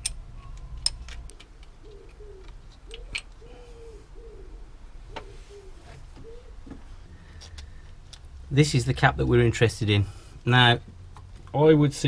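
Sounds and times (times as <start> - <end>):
pigeon cooing: 1.8 - 6.8.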